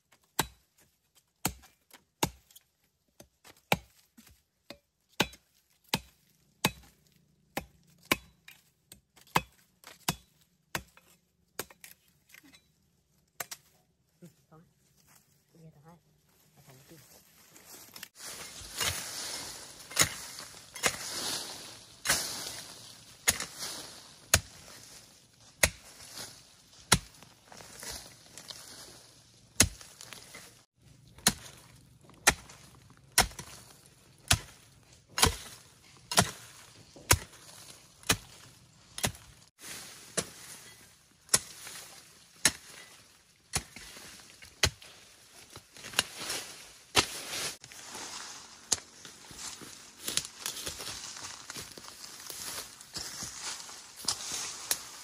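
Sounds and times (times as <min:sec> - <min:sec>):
hoe chopping into soil: 0:18.0 - 0:24.8, 0:26.8 - 0:28.1, 0:29.6 - 0:30.5, 0:31.1 - 0:40.6, 0:45.5 - 0:47.7.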